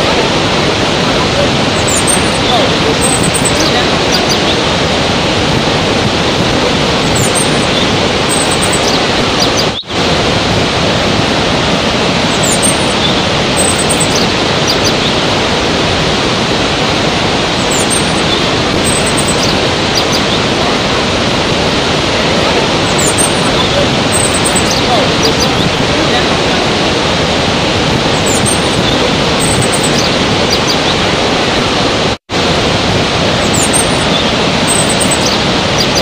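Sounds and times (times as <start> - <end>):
waterfall rushing: 0.0 - 36.0
faint bird chirps: 1.7 - 4.6, 7.0 - 9.9, 12.3 - 15.2, 17.6 - 20.5, 22.8 - 25.7, 28.2 - 31.0, 33.4 - 36.0.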